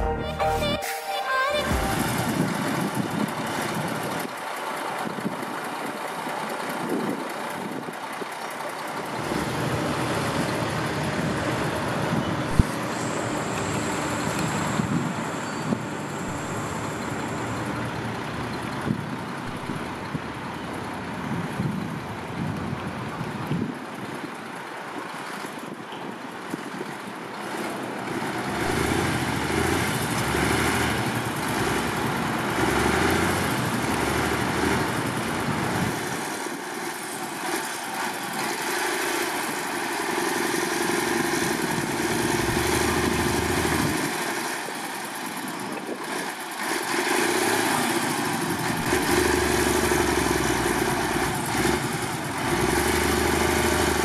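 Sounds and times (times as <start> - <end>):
diesel engine under load: 1.6 - 54.0
wheels spinning in sand: 2.1 - 54.0.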